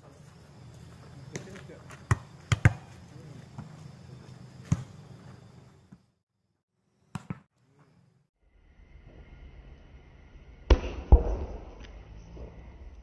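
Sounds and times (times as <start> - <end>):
volleyball slaps: 7.1 - 7.5.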